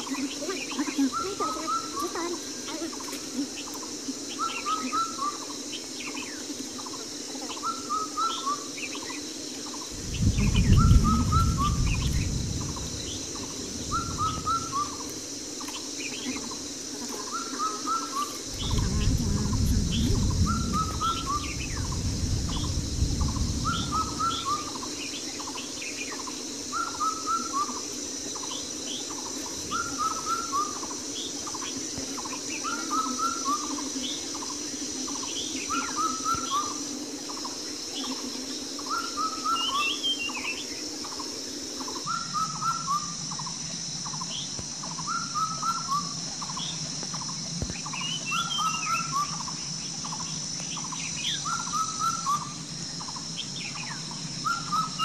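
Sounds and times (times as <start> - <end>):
steady high hiss: 0.0 - 55.0
low rumbling noise: 9.9 - 15.4, 18.4 - 25.2.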